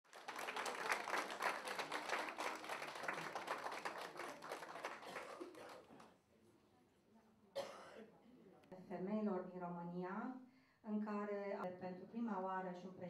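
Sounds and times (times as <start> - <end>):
audience applauding: 0.0 - 6.1.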